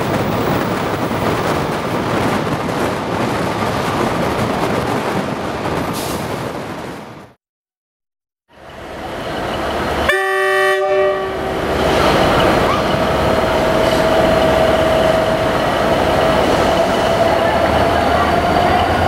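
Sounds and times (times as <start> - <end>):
diesel locomotive engine rumble: 8.5 - 19.0
train horn blast: 10.1 - 11.6.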